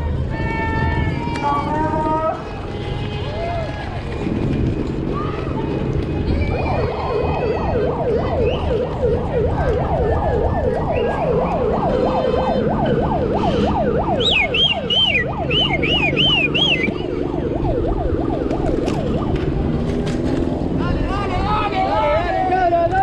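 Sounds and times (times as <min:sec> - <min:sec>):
siren yelping: 0:06.3 - 0:19.8.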